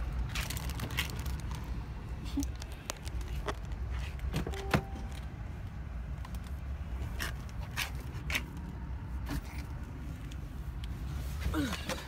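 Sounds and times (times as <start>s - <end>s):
handling noise: 3.0s - 5.4s
short beep: 4.5s - 5.2s.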